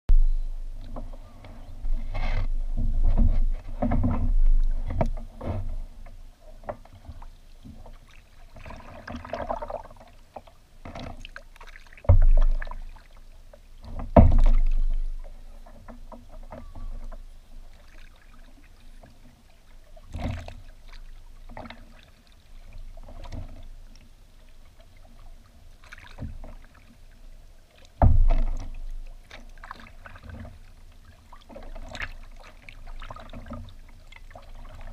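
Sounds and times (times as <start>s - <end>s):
hollow knocks against hull: 0.8s - 10.0s, 12.0s - 13.2s, 13.8s - 17.3s, 20.0s - 22.1s, 28.0s - 34.9s
paddle strokes splashing: 0.8s - 34.9s.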